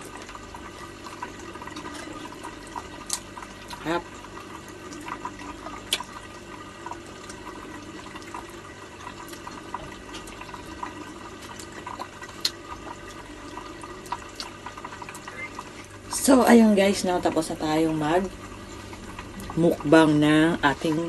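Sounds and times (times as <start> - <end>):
water trickling: 0.0 - 21.0
crab shell cracking and chewing: 3.0 - 3.8, 5.8 - 6.2, 11.3 - 12.8, 14.0 - 14.7.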